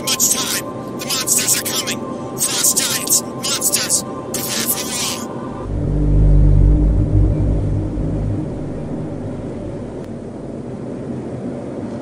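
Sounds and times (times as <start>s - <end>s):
steady low hum: 5.4s - 11.4s
deep low rumbling: 5.5s - 11.2s.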